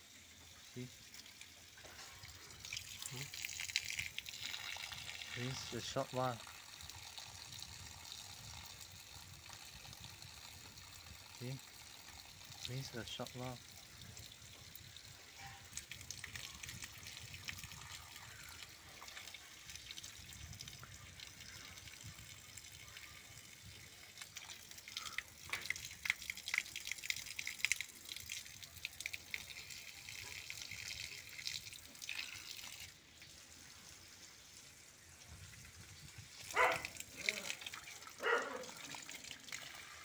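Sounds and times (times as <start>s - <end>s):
water jet splattering on ground: 1.8s - 6.4s, 23.8s - 34.0s, 36.3s - 40.0s.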